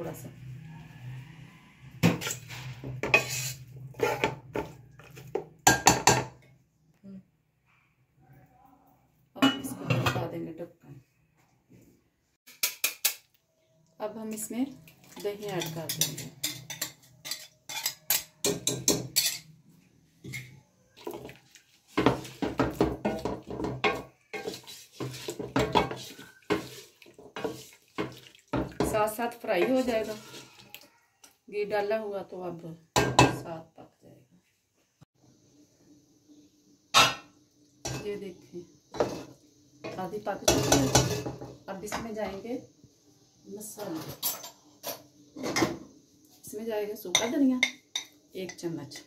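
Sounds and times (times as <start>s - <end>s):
wooden spoon scraping metal pot: 2.0s - 5.4s, 15.0s - 19.5s, 20.2s - 30.7s, 38.9s - 41.4s.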